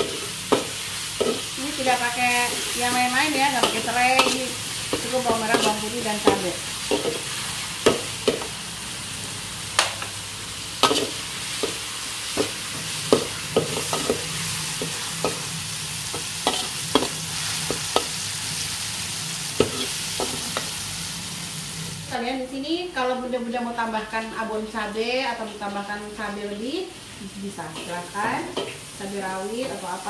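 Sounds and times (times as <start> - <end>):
metal spatula scraping wok: 0.0 - 8.5, 10.8 - 15.5, 16.1 - 18.7
aromatics sizzling in hot oil: 0.0 - 22.3, 23.2 - 30.0.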